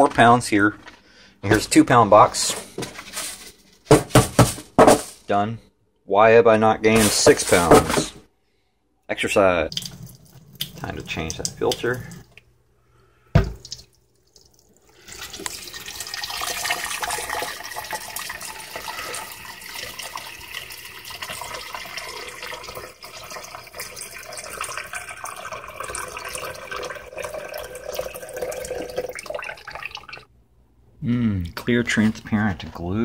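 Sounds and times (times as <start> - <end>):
tap water running: 9.6 - 12.5, 13.3 - 30.3.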